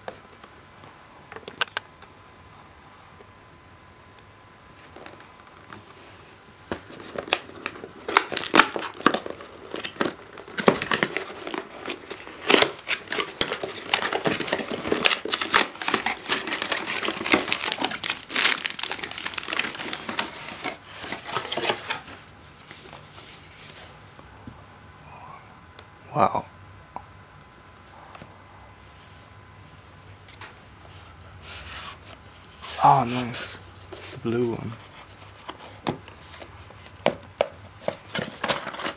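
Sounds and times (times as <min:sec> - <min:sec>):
cardboard box being opened: 0:06.7 - 0:22.2
packing crinkling and tearing: 0:06.7 - 0:23.8, 0:31.4 - 0:38.9.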